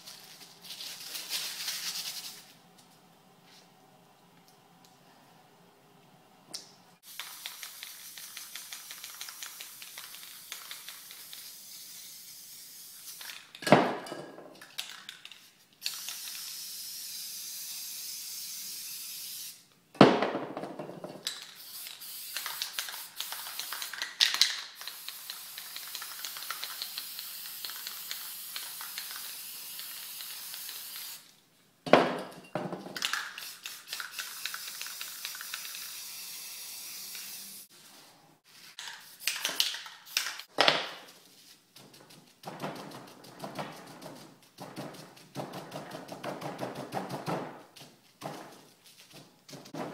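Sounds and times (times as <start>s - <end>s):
spray paint can hissing: 7.0s - 13.5s, 14.8s - 19.6s, 21.3s - 31.3s, 33.0s - 37.7s, 38.8s - 40.5s.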